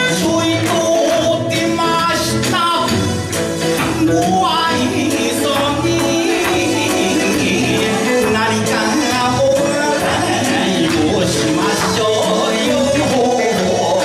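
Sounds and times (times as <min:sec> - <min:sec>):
person singing folk song: 0:00.0 - 0:14.0.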